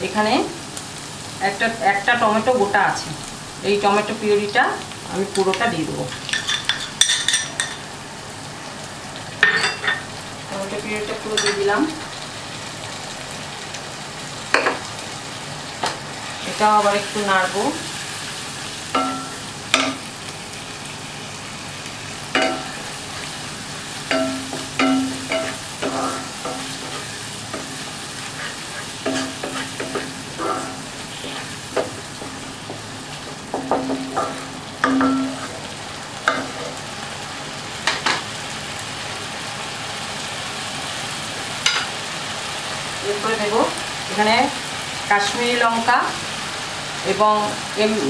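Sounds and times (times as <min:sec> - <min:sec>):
food sizzling in a pan: 0:00.0 - 0:48.0
spatula scraping and knocking pan: 0:24.0 - 0:35.7.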